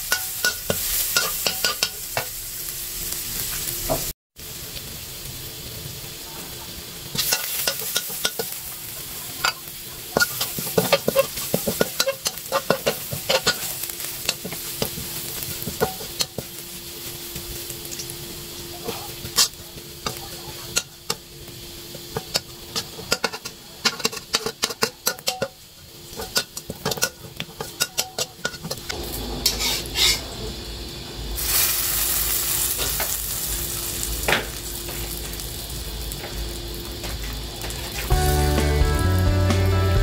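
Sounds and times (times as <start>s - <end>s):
metal spatula scraping a wok: 0.0s - 2.4s, 7.1s - 17.2s, 22.0s - 30.4s
garlic sizzling in oil: 0.0s - 40.0s.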